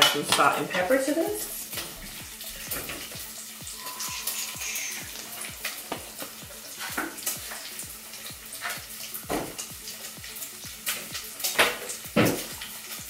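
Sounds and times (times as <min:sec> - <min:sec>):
food sizzling in a pan: 0:00.0 - 0:13.0
background music with low beat: 0:00.2 - 0:13.0.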